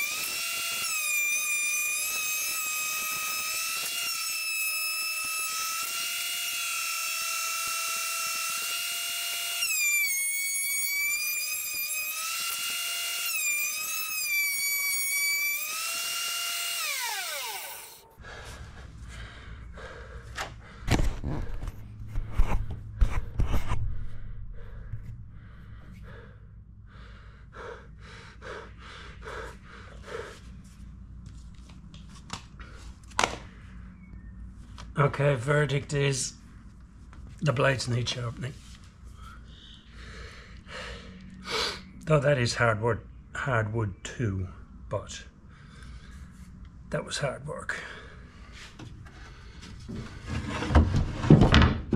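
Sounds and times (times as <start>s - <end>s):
thickness planer whining: 0.0s - 18.2s.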